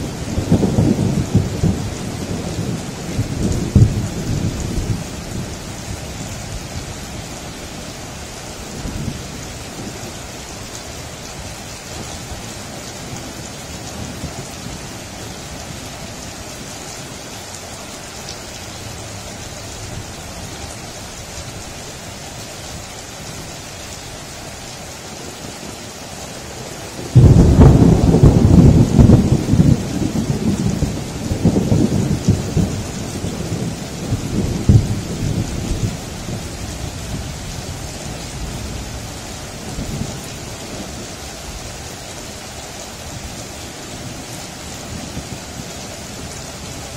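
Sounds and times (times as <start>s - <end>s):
thunderclap and rumble: 0.0s - 7.4s, 26.9s - 41.6s
steady rain: 0.0s - 46.9s.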